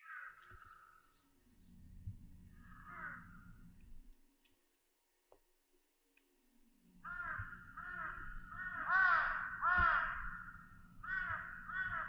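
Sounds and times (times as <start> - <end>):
crows cawing: 0.0 - 1.1, 2.6 - 3.5, 7.0 - 12.0
low steady rumble: 1.4 - 4.2.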